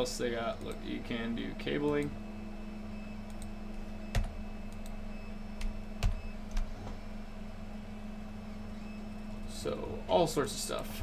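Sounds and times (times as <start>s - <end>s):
low hum: 0.0s - 11.0s
computer clicks: 3.2s - 5.0s.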